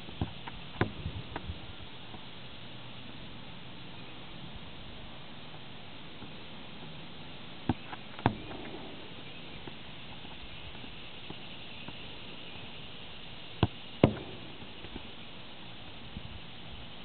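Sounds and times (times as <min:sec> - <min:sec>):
ball thudding against a wall: 0:00.2 - 0:01.1, 0:07.7 - 0:08.8, 0:13.6 - 0:15.0.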